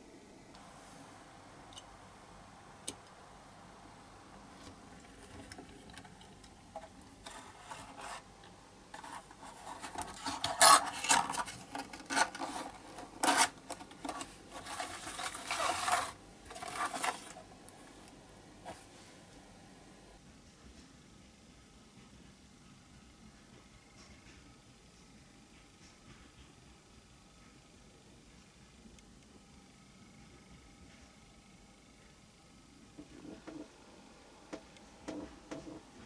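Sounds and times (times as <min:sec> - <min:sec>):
cardboard box rustling: 0:09.0 - 0:17.4.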